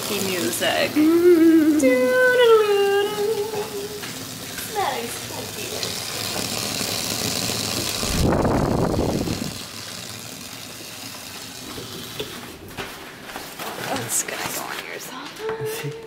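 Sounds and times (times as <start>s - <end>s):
water hissing on dry ice: 0.0s - 12.7s.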